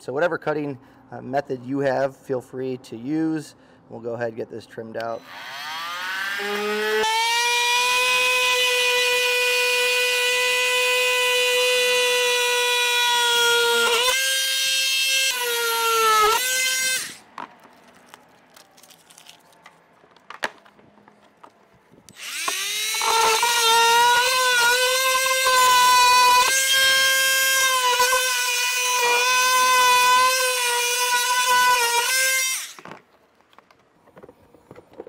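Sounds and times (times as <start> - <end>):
oscillating multi-tool whine: 5.2 - 17.2, 22.1 - 32.9.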